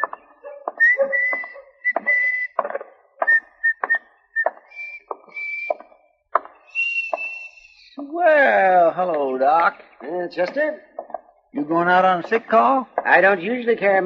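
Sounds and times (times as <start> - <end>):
person whistling a tune: 0.0 - 2.6, 3.2 - 5.9, 6.7 - 8.0
footsteps: 0.0 - 7.6.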